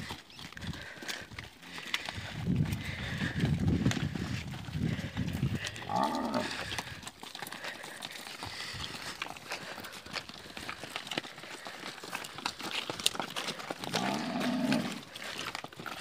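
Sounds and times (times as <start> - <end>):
footsteps on dirt track: 0.0 - 16.0
hooves on dirt: 0.0 - 16.0
cattle mooing: 5.8 - 6.6, 13.8 - 15.1.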